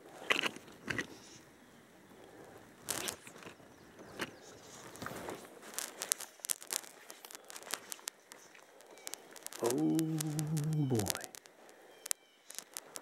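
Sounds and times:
fly line stripped by hand: 0:02.9 - 0:13.0
cloth rustling against camera: 0:04.4 - 0:11.6.

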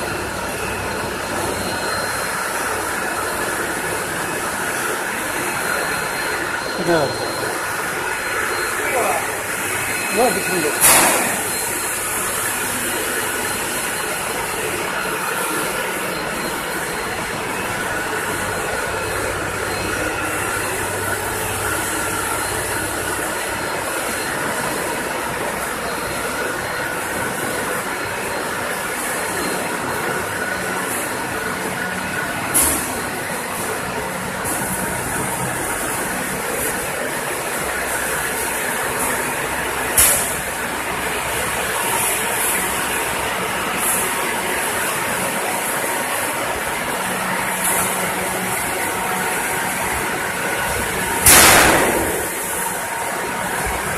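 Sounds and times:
machinery rumbling and clattering: 0:00.0 - 0:53.9.

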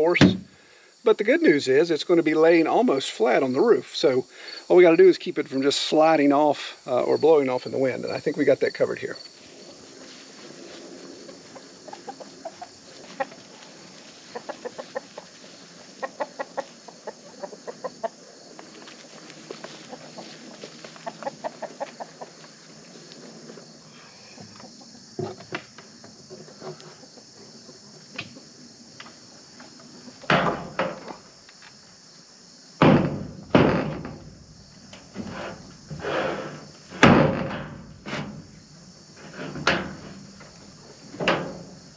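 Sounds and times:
hens clucking: 0:09.6 - 0:25.1
thump on metal roof: 0:30.3 - 0:31.1, 0:32.8 - 0:34.4, 0:36.9 - 0:38.5.

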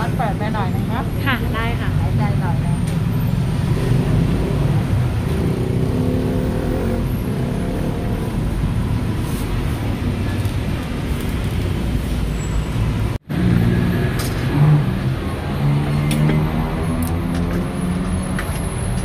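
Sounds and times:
street traffic rumble: 0:00.0 - 0:19.0.

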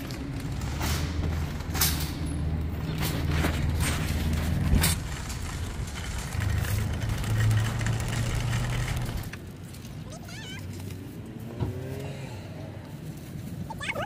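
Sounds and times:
shopping cart rattling on pavement: 0:00.0 - 0:10.7.

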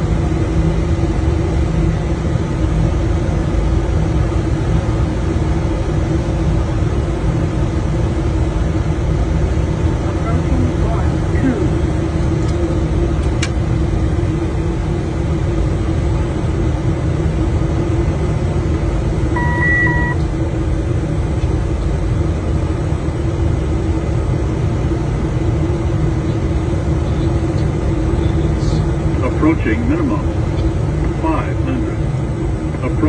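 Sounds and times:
jet cockpit engine rumble: 0:00.0 - 0:33.0
short electronic beeps: 0:19.4 - 0:20.2.

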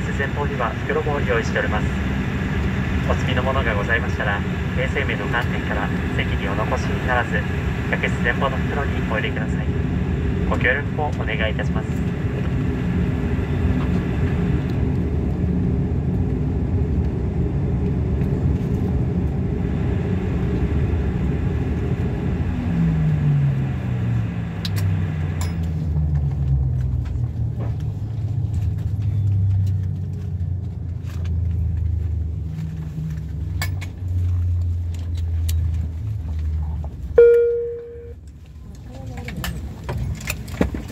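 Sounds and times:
turboprop engines spooling down: 0:00.0 - 0:28.2.

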